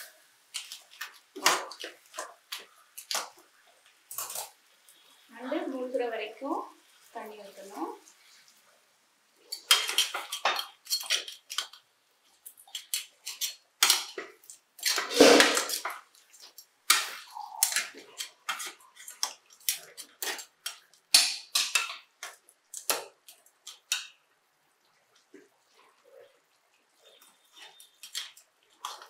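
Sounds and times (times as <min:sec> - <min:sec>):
metal ladle scraping a pan: 0:14.8 - 0:15.9.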